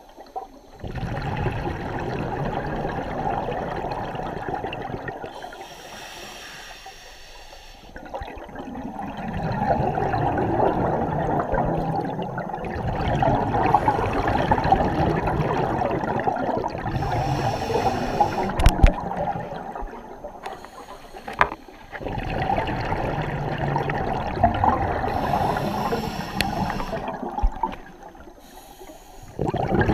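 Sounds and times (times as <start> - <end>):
regulator hissing inhalations: 5.3 - 8.0, 13.7 - 14.4, 16.8 - 18.7, 20.4 - 22.0, 25.0 - 27.2, 28.4 - 29.4
bubbling exhalations: 8.0 - 28.2, 29.3 - 29.9.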